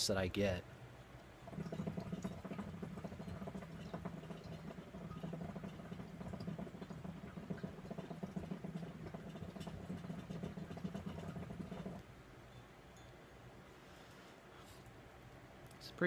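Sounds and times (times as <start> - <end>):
hookah water bubbling: 0.9 - 12.2.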